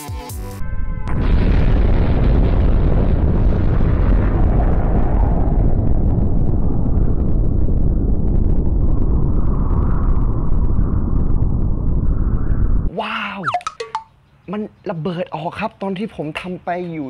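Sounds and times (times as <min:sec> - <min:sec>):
deep explosion rumble: 0:00.6 - 0:12.9.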